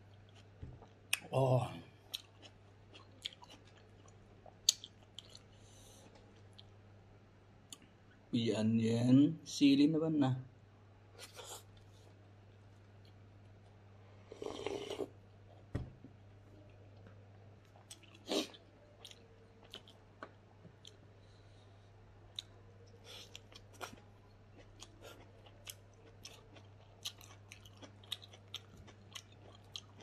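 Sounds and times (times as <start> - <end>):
chewing and wet mouth smacks: 2.1 - 5.6, 17.0 - 21.0
slurp from soup bowl: 14.3 - 15.1.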